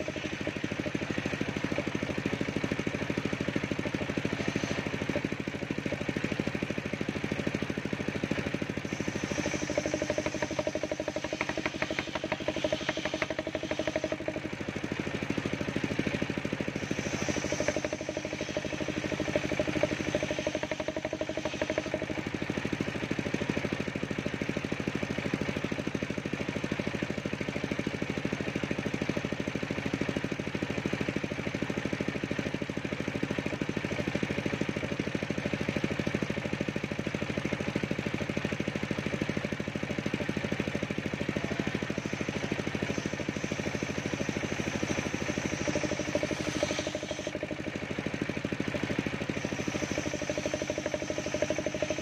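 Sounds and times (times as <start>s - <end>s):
circular saw bench cutting wood: 0.0s - 24.6s, 40.0s - 52.0s.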